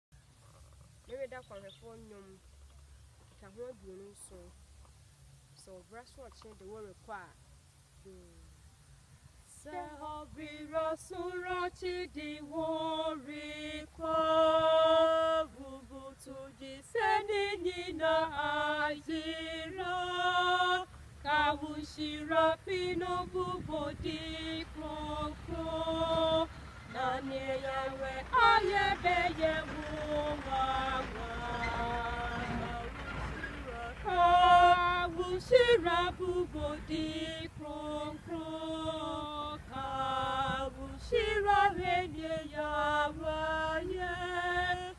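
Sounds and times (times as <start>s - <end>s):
women singing a hymn: 9.4s - 44.9s.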